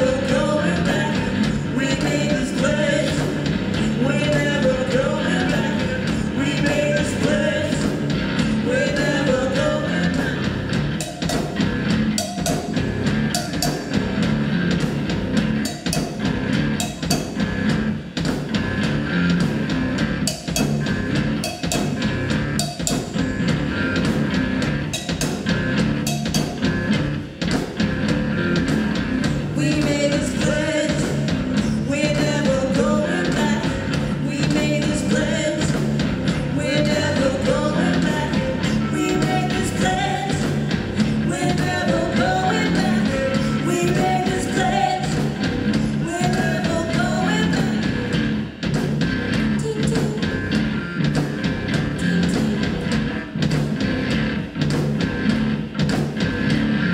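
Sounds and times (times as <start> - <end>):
woman singing: 0.0 - 10.6, 29.3 - 48.1, 49.6 - 50.5, 52.0 - 52.8
drums beating: 0.0 - 56.9
live rock band playing: 0.0 - 56.9.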